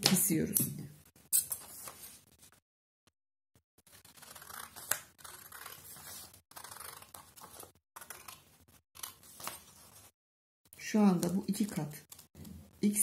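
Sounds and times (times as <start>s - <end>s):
scissors cutting paper: 3.8s - 9.9s.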